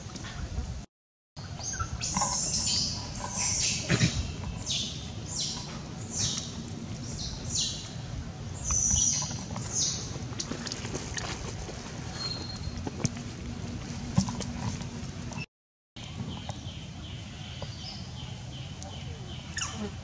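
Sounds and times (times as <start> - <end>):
bird chirping: 1.4 - 8.0, 8.6 - 10.1, 16.0 - 19.9.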